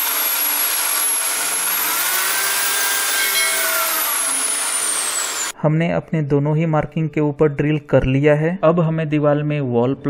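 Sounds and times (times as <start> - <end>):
electric drill grinding into tile grout: 0.0 - 5.5.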